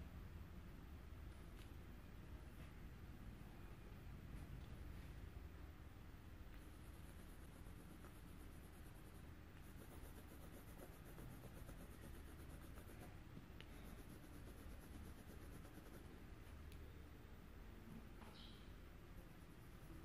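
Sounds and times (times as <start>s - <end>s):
coloured pencil scratching on paper: 6.6s - 13.2s, 13.8s - 16.2s.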